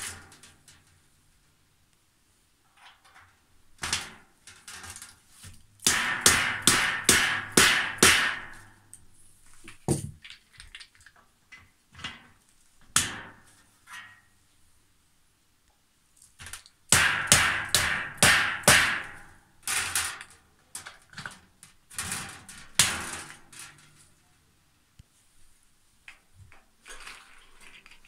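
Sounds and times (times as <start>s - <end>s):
knocks on metal trolley frame: 5.9s - 8.6s.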